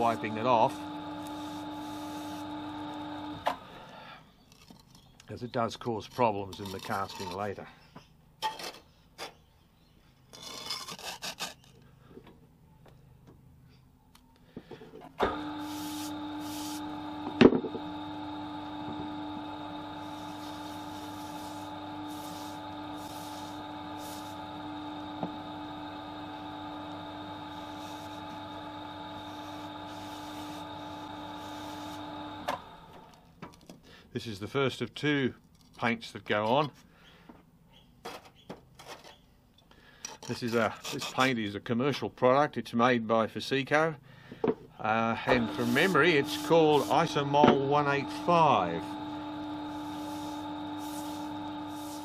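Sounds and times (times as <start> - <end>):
rag rubbing on spinning core: 0.0 - 3.4, 6.0 - 7.6, 10.3 - 11.7, 15.3 - 32.9, 45.2 - 52.0
lathe motor humming: 0.0 - 4.0, 15.2 - 33.2, 45.2 - 52.0.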